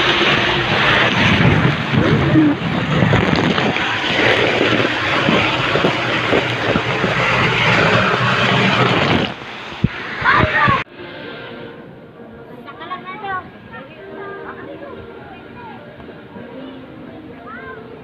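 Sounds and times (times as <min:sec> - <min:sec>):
water splashing and rushing: 0:00.0 - 0:10.9.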